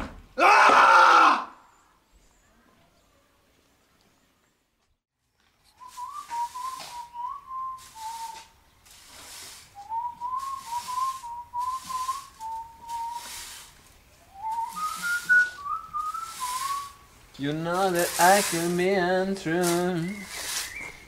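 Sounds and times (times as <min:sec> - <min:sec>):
person whistling a tune: 0:05.8 - 0:08.5, 0:09.8 - 0:13.3, 0:14.3 - 0:17.0, 0:19.8 - 0:21.0.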